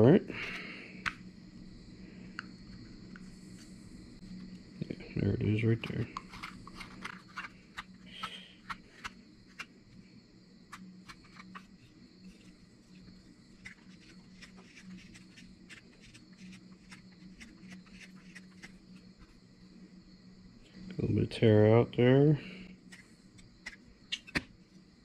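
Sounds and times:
insects chirring: 0:00.0 - 0:25.0
knife shaving wood: 0:11.1 - 0:19.4.

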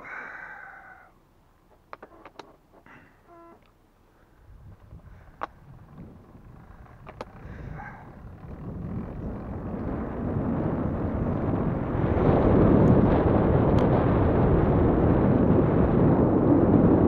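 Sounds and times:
wind buffeting microphone: 0:04.3 - 0:17.0
sharp clicks: 0:06.6 - 0:07.4.

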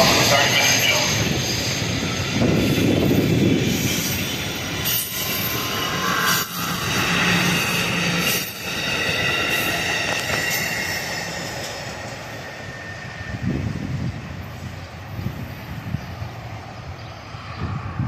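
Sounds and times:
train wheels rumbling on rail: 0:00.0 - 0:18.0
high wheel squeal: 0:03.6 - 0:13.8.

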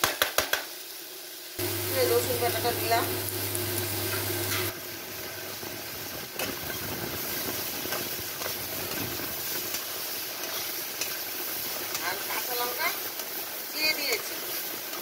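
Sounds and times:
food sizzling in a frying pan: 0:00.0 - 0:15.0
spatula scraping a pan: 0:06.4 - 0:12.0.

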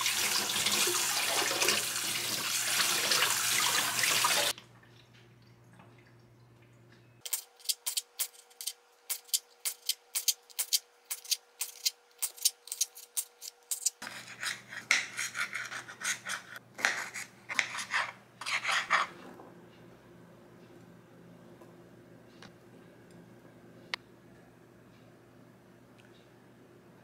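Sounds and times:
knife slicing tomatoes: 0:09.2 - 0:19.1
knife chopping on cutting board: 0:16.8 - 0:19.0.

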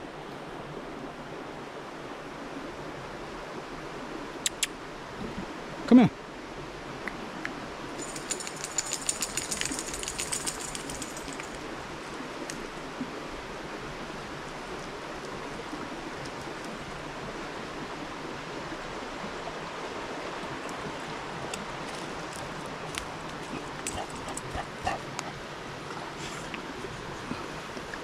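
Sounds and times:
fast high-pitched clicking: 0:08.0 - 0:11.5
woodland background rushing: 0:08.0 - 0:12.2, 0:19.7 - 0:27.8.

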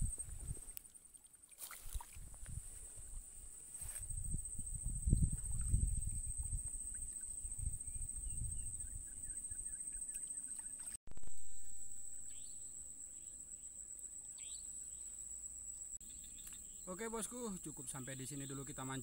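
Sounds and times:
wind rumble on microphone: 0:00.0 - 0:00.8, 0:01.8 - 0:09.8
insects droning: 0:00.0 - 0:19.0.

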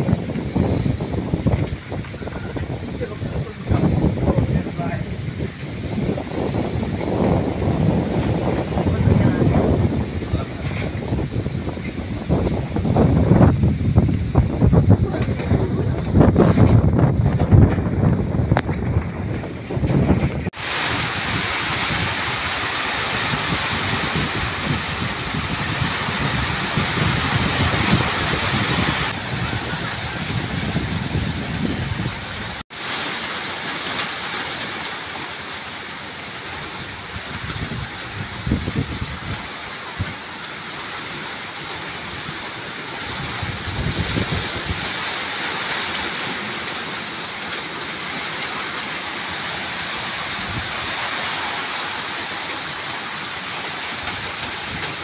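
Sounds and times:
wind buffeting the microphone: 0:00.0 - 0:33.0, 0:36.4 - 0:55.0
heavy rain: 0:00.0 - 0:55.0
strong gusting wind: 0:00.0 - 0:55.0.

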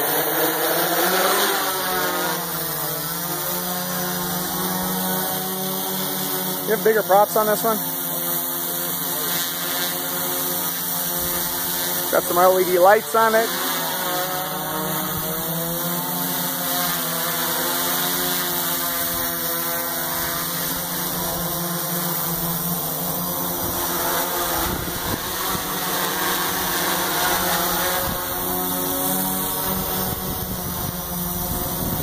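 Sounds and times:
drone propellers whirring: 0:00.0 - 0:32.0.

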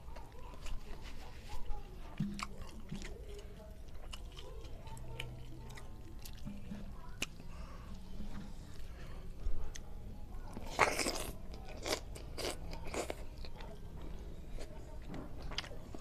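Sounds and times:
wet chewing clicks: 0:02.1 - 0:08.2.

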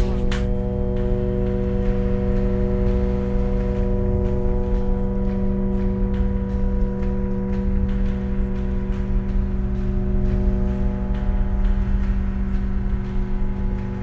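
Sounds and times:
low rumble: 0:00.0 - 0:14.0.

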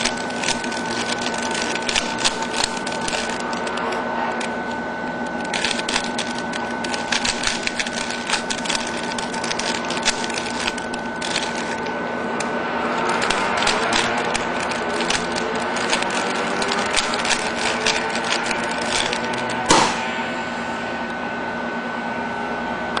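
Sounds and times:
plastic puzzle cube clicking: 0:00.0 - 0:04.5, 0:05.3 - 0:11.9, 0:13.0 - 0:19.8
steady hum: 0:00.0 - 0:23.0
cube knocking on table: 0:19.7 - 0:20.0.

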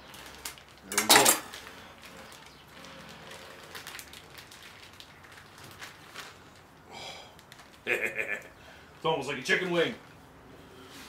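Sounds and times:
plastic bag rustling and crinkling: 0:00.0 - 0:08.0.

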